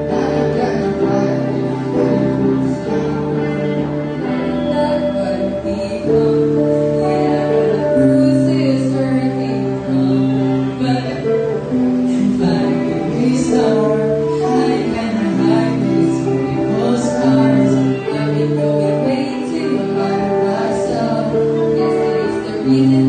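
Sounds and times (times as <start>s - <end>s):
guitar: 0.0s - 23.0s
woman singing: 0.0s - 23.0s.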